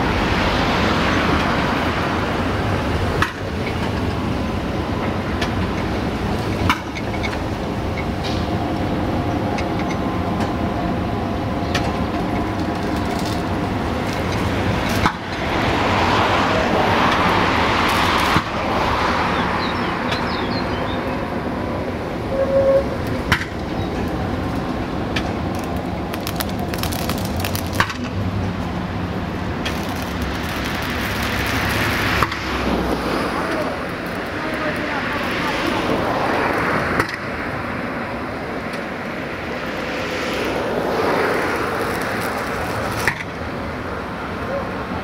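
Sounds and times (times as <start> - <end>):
heavy vehicle humming: 0.0 - 45.0
rushing noise: 12.0 - 44.4.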